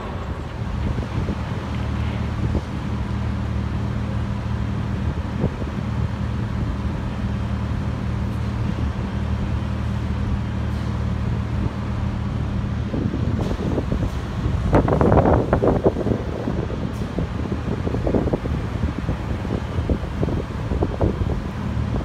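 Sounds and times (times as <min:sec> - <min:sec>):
wind noise: 0:00.0 - 0:03.4, 0:04.7 - 0:07.0, 0:11.2 - 0:22.0
machinery engine humming: 0:00.0 - 0:22.0.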